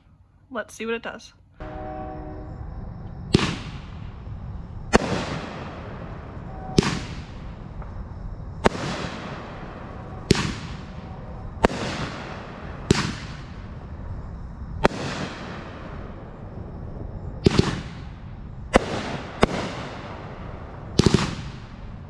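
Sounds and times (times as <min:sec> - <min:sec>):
fireworks shells bursting: 0:04.9 - 0:08.0.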